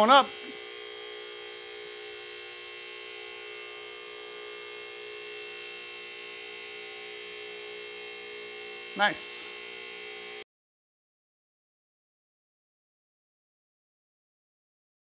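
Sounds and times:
electric motor hum: 0.0 - 10.4.

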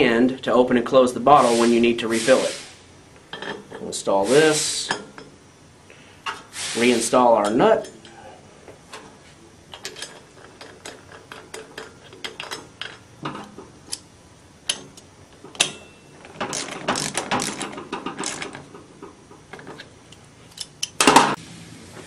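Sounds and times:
ratchet wrench clicking: 16.5 - 18.6.

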